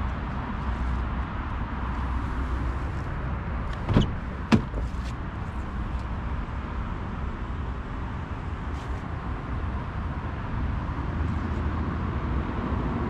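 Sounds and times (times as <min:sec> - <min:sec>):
car door latch clicks: 0:03.7 - 0:05.1.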